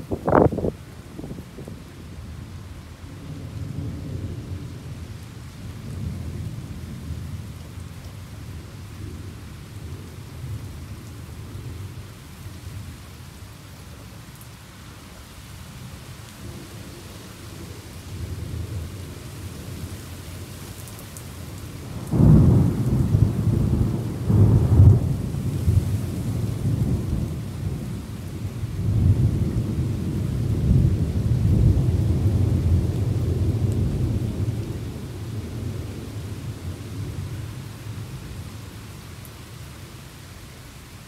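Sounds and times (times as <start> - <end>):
steady rain: 0.0 - 41.0
rolling thunder: 21.9 - 37.4
loud thunderclap: 22.1 - 27.9.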